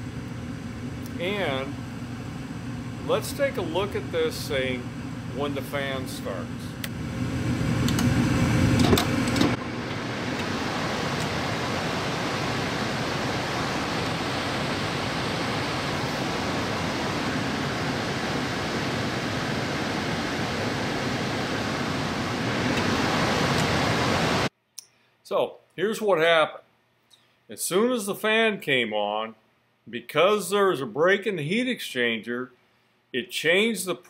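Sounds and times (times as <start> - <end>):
blower fan rushing air: 0.0 - 24.5
gas furnace burners rumbling: 0.0 - 24.5.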